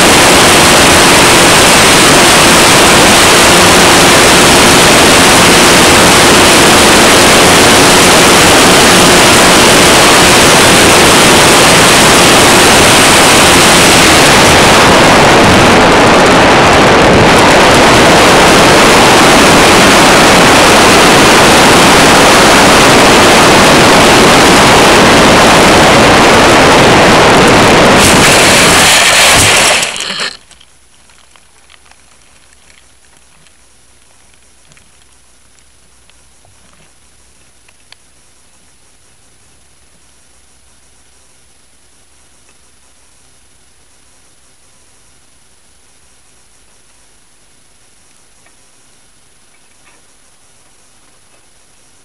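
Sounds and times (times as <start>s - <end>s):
wind rushing over camera: 0.0s - 37.0s.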